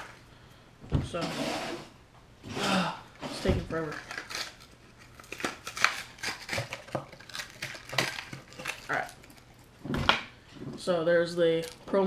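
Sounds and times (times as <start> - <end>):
plastic packaging crackling: 3.7 - 9.8, 11.5 - 11.9.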